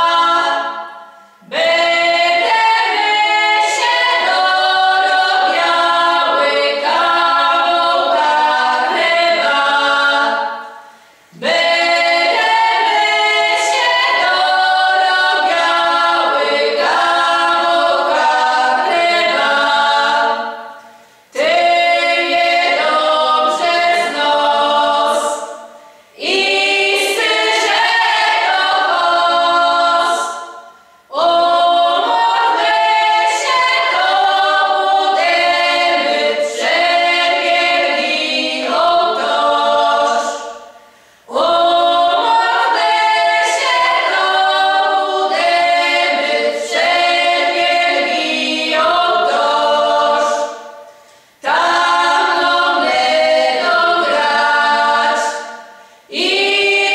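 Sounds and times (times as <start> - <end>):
women singing unaccompanied: 0.0 - 56.9.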